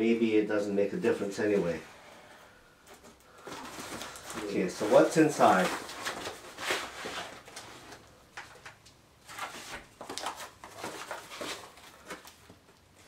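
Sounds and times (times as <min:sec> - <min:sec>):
plastic parcel rustling: 0:02.9 - 0:13.0.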